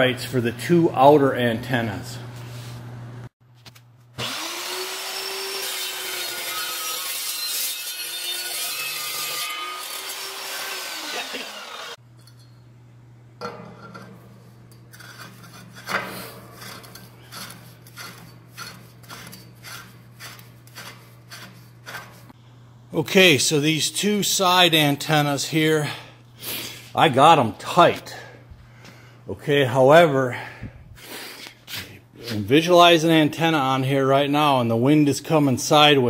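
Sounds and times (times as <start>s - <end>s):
chop saw cutting steel pipe: 4.2s - 12.0s, 15.0s - 22.3s
metallic clicks and scrapes: 13.4s - 22.4s.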